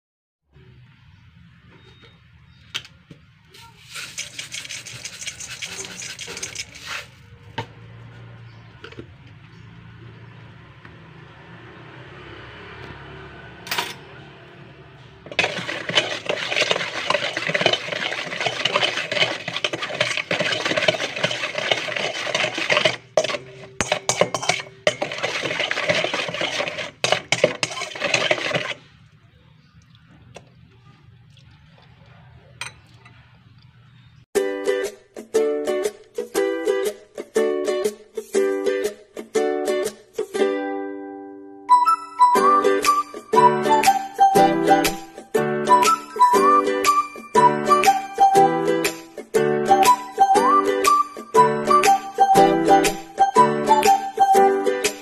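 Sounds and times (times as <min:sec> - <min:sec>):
metal spoon scraping steel bowl: 0:03.6 - 0:07.3, 0:15.2 - 0:28.9.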